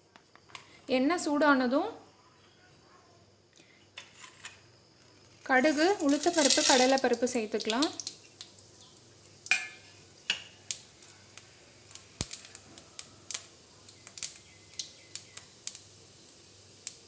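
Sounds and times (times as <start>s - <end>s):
mustard seeds popping in oil: 4.0s - 17.0s.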